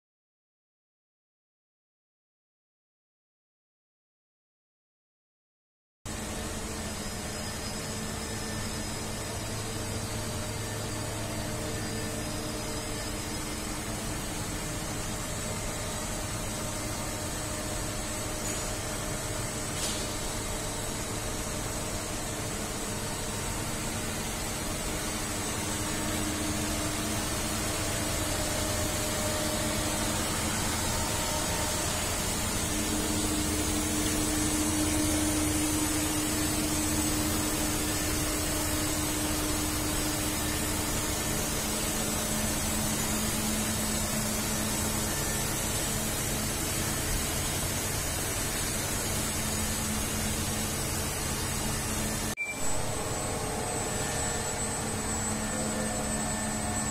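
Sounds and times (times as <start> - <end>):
machining center whirring and humming: 6.1 - 56.9
low hum tone: 48.6 - 56.9.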